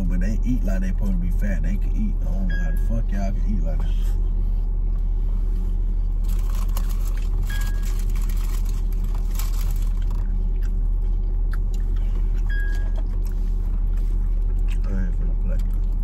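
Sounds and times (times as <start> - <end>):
car engine and cabin hum: 0.0 - 16.0
person chewing food: 6.1 - 16.0.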